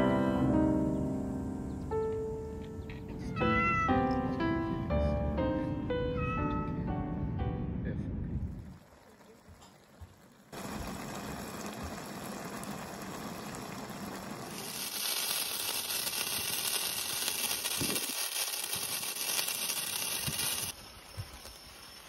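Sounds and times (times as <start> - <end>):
pot simmering and bubbling: 8.5 - 22.0
sparklers fizzing: 8.7 - 22.0.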